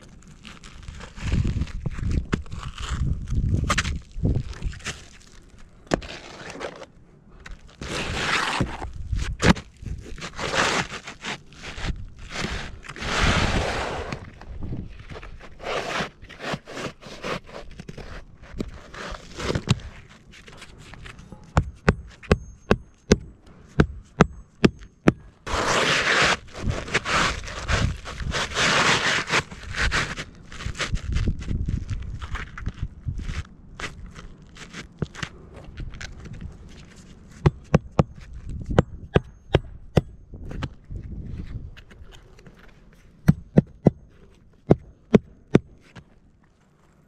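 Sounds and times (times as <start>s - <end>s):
shingles scraping and rustling: 0.0s - 21.4s, 25.5s - 37.4s.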